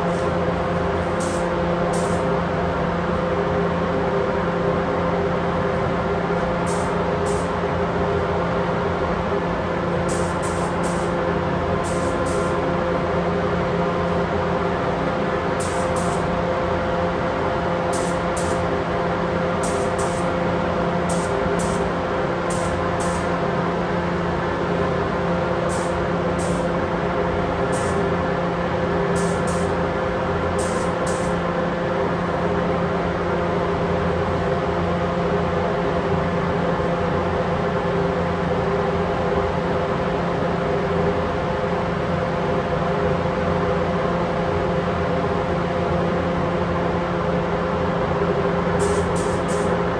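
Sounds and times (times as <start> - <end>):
ventilation hum: 0.0 - 49.9
spray gun hissing: 1.1 - 2.3, 6.7 - 7.5, 10.1 - 11.2, 11.8 - 12.6, 15.6 - 16.3, 17.9 - 18.6, 19.6 - 20.3, 21.1 - 21.9, 22.5 - 23.3, 25.7 - 26.7, 27.7 - 28.0, 29.2 - 29.8, 30.6 - 31.4, 48.8 - 49.7.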